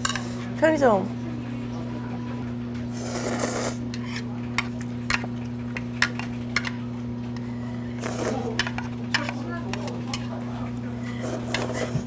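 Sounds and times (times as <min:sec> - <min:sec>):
low electrical hum: 0:00.0 - 0:12.0
noodles slurped: 0:03.0 - 0:03.8, 0:08.0 - 0:08.6.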